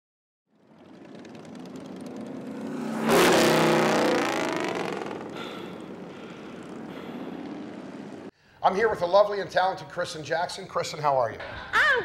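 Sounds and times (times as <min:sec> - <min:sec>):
motorcycles riding past: 0:00.5 - 0:08.3.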